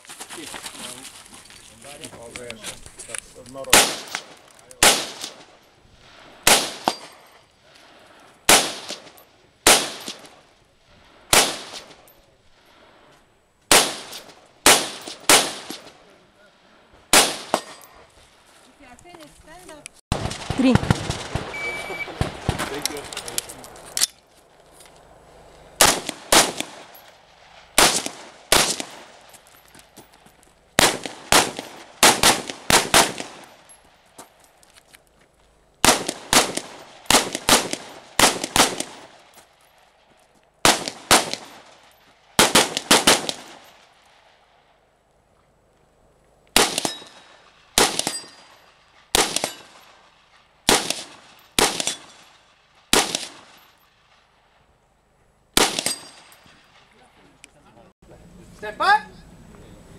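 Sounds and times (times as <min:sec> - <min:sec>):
rifle shots with ringing echo: 0:03.6 - 0:05.6, 0:06.4 - 0:07.4, 0:08.5 - 0:10.5, 0:11.3 - 0:12.2, 0:13.7 - 0:16.2, 0:17.1 - 0:18.0, 0:20.1 - 0:23.1, 0:25.8 - 0:29.3, 0:30.8 - 0:33.8, 0:35.8 - 0:39.4, 0:40.6 - 0:44.3, 0:46.6 - 0:54.3, 0:55.5 - 0:56.9.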